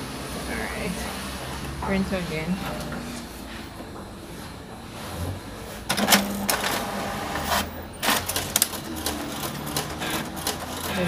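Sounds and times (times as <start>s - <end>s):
printer motor whir: 0.0s - 11.0s
printer mechanism clicks: 5.9s - 7.0s, 8.0s - 11.0s.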